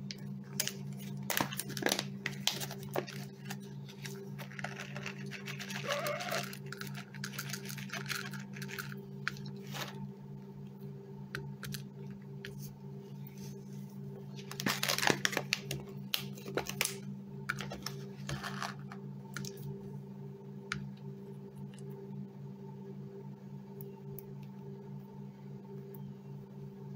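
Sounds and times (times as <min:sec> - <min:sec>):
steady low hum: 0:00.0 - 0:26.9
treats rattling into a bowl: 0:00.7 - 0:09.9.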